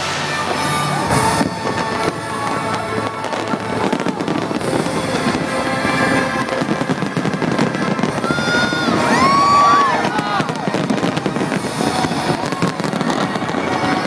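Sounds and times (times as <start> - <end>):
fireworks bangs and crackling: 0.0 - 14.0.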